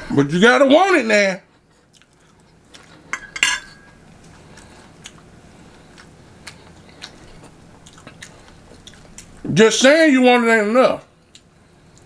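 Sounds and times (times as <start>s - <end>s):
person chewing: 1.7s - 3.1s, 4.2s - 9.4s, 11.2s - 12.0s.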